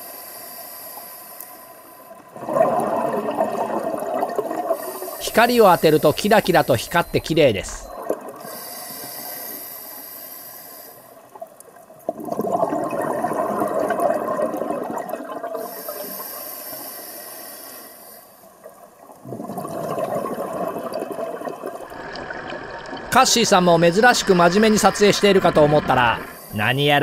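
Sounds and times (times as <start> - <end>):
regulator hissing inhalation: 0.0 - 2.2, 4.7 - 11.2, 15.6 - 18.5, 26.2 - 27.0
exhaled bubbles rushing: 2.3 - 8.4, 12.1 - 15.6, 19.1 - 26.4.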